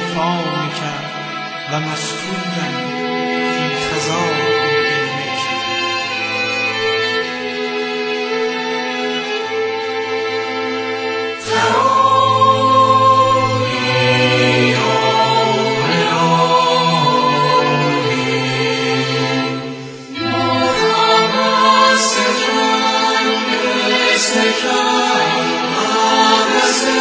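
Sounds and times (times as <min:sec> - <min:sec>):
choir singing held chords: 0:09.4 - 0:27.0.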